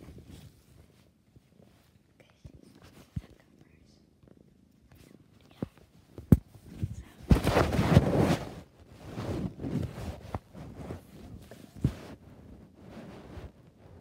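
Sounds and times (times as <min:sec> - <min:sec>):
bedsheets rustling: 0:06.5 - 0:14.0.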